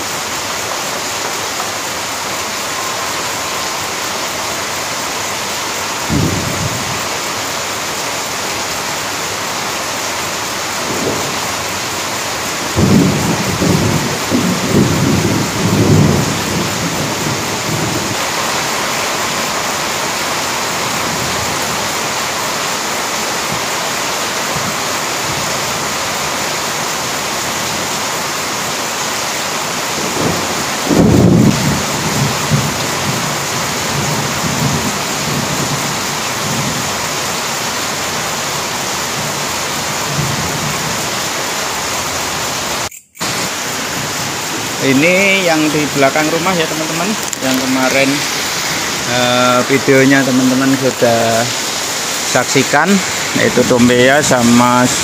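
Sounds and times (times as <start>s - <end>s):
heavy rain pouring: 0.0s - 55.0s
rolling thunder rumble: 6.0s - 7.6s, 10.7s - 22.0s, 29.9s - 41.2s, 43.8s - 55.0s.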